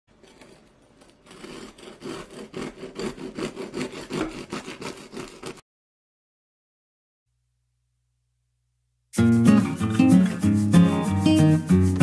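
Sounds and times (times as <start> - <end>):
knife sawing through bread crust: 0.1 - 5.6.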